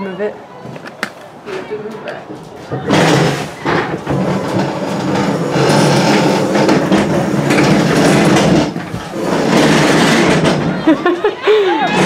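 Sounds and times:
table dragged scraping: 0:02.5 - 0:10.8.

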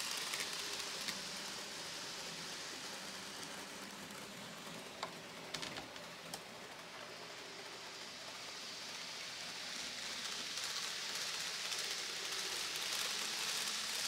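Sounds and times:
model train wheels on rail: 0:00.0 - 0:14.0.

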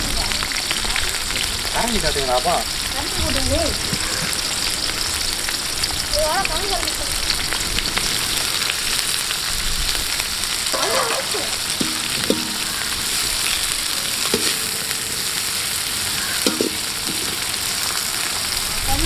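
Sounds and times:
onions frying in hot oil: 0:00.0 - 0:19.0
metal ladle knocking against pan: 0:11.7 - 0:15.5, 0:16.2 - 0:17.5.

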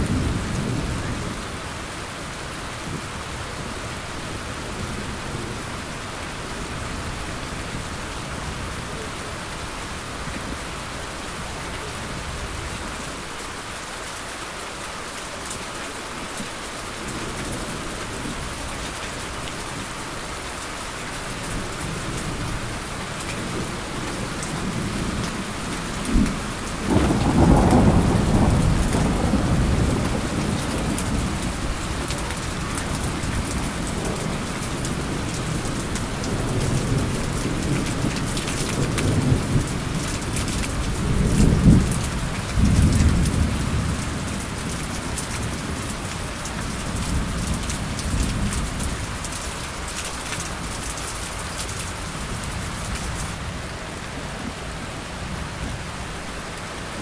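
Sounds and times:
heavy rain: 0:00.0 - 0:57.0
rolling thunder: 0:23.4 - 0:45.9.

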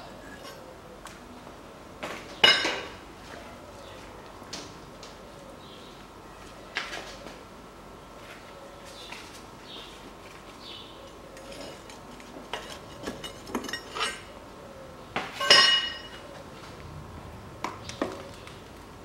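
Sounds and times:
metal tools clanking on engine: 0:11.3 - 0:14.3, 0:15.4 - 0:16.2.

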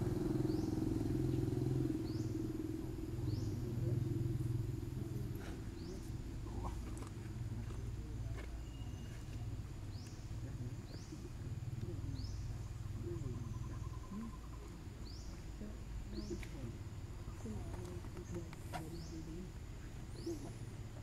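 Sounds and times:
steady low rumble: 0:00.0 - 0:08.4
bird chirping: 0:00.0 - 0:21.0.

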